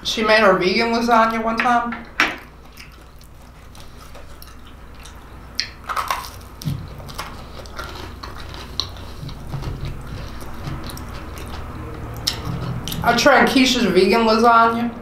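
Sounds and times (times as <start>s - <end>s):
chewing: 2.4s - 13.6s
crisp crust crackles: 2.6s - 13.2s
bread being torn: 2.7s - 13.1s.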